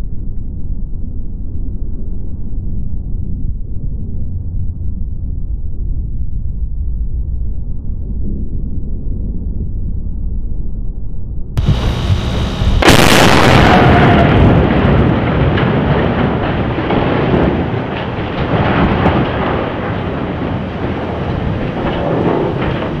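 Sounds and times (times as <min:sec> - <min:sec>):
loud explosion blast: 0:11.6 - 0:23.0
rolling rumble: 0:11.6 - 0:23.0.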